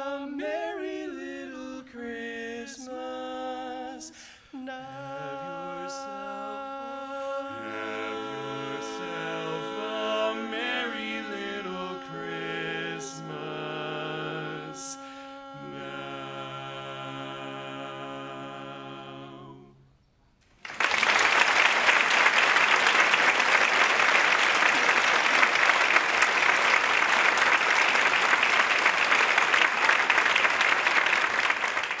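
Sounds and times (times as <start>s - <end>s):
men's chorus singing a chord: 0.0s - 19.8s
audience applause: 20.6s - 32.0s.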